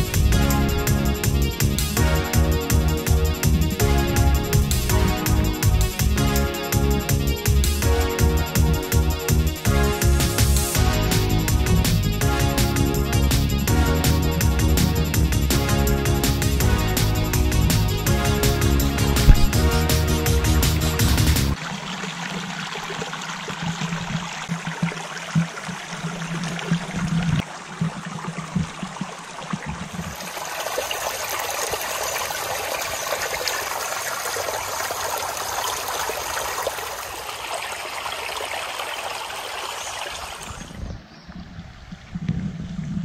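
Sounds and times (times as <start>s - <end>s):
creek water babbling over rocks: 17.9s - 40.8s.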